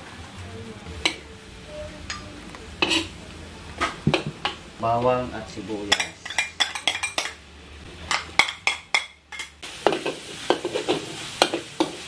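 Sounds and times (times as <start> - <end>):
frying sizzle: 0.0 - 12.0
metal spatula scraping a wok: 2.8 - 3.2, 9.9 - 12.0.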